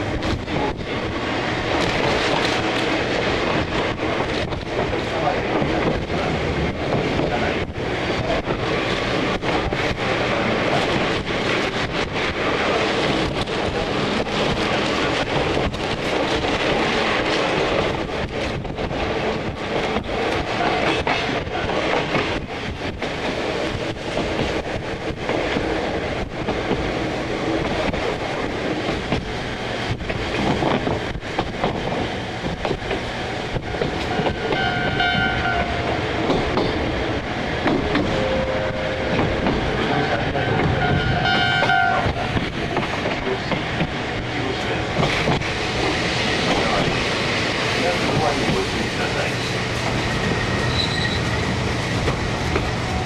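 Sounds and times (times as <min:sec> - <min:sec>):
train rumbling on track: 0:00.0 - 0:53.0
wheel clacks over rail joints: 0:10.8 - 0:37.0
level crossing warning bells: 0:38.1 - 0:42.0.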